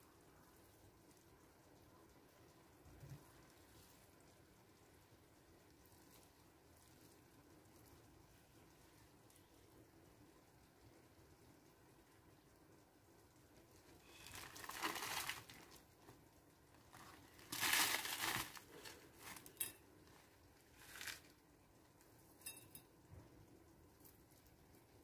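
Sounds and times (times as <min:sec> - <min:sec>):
crispy food rustling: 0:13.8 - 0:21.4.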